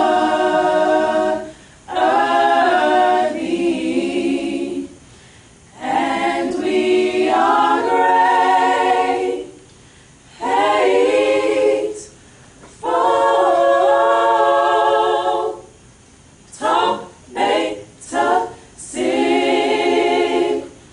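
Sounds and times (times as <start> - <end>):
group singing a cappella: 0.0 - 5.1, 5.7 - 9.7, 10.3 - 15.9, 16.5 - 20.9.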